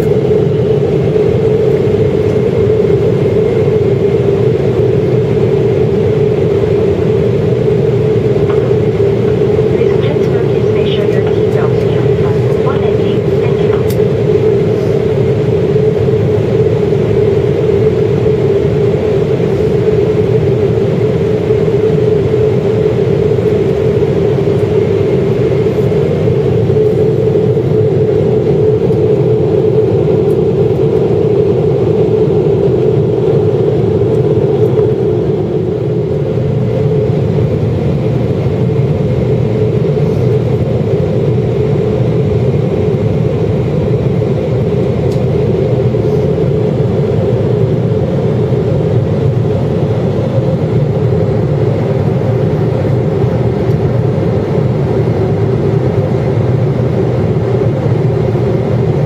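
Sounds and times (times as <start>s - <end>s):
jet engines droning: 0.0s - 59.0s
steady hum: 0.0s - 59.0s
rush of airflow: 12.2s - 20.6s.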